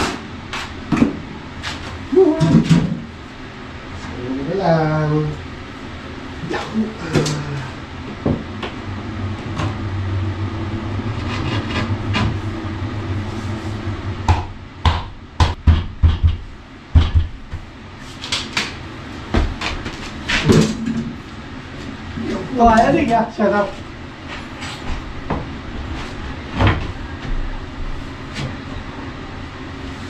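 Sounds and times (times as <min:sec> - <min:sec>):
low hum: 0:02.1 - 0:18.1.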